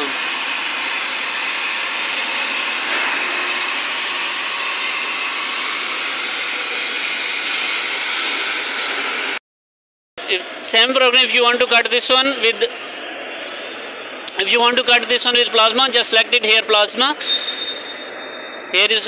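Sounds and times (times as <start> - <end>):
cutting torch hissing: 0.0 - 9.4.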